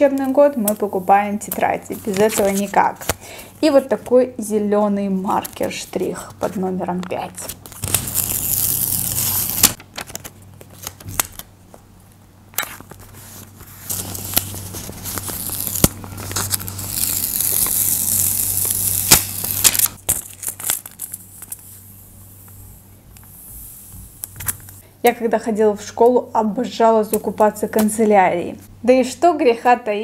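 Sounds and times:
paper peeling: 1.4s - 3.2s, 7.3s - 11.5s, 12.6s - 21.7s
paper crinkling and rustling: 1.5s - 3.2s, 5.2s - 11.8s, 12.6s - 21.6s.

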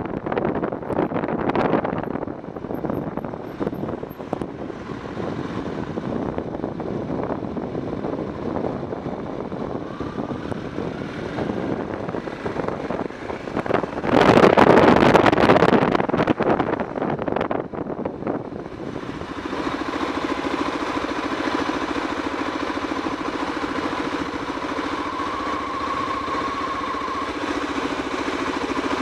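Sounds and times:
wind rush over microphone: 0.0s - 21.1s
motorcycle engine running: 0.0s - 29.0s.

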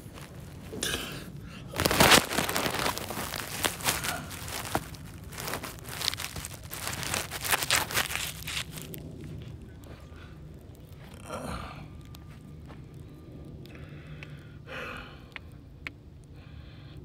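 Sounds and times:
grass rustling against phone: 1.7s - 9.6s.

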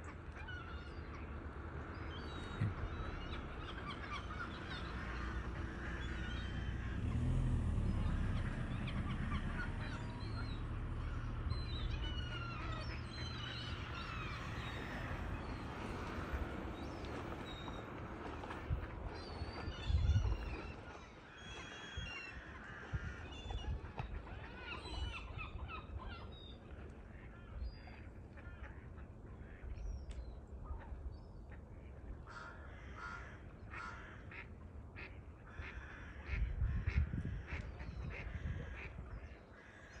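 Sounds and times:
birds chirping: 0.0s - 16.1s
duck-like calls: 32.3s - 39.0s.

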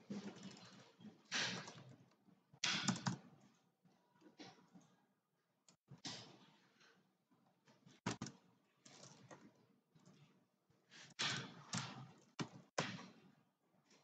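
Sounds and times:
computer keyboard typing: 2.6s - 3.5s, 8.0s - 9.4s.

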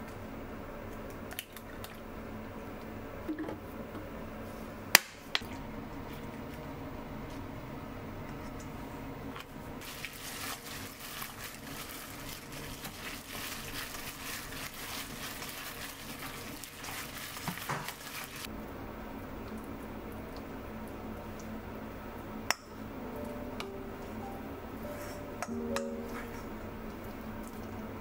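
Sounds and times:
gloved hand squishing meat: 9.8s - 18.5s
plastic glove crinkling: 9.8s - 18.5s.

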